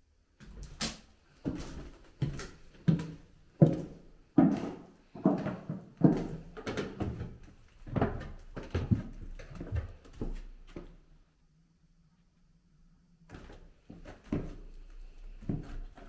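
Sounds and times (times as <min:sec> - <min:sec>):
floorboards creaking: 0:01.4 - 0:10.4
footsteps on wooden floorboards: 0:01.4 - 0:10.9, 0:13.3 - 0:16.0.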